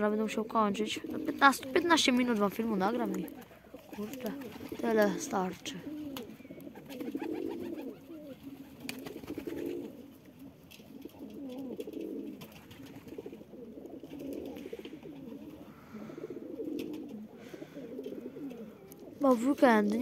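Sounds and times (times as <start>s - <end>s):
pigeons cooing: 0.0s - 20.0s.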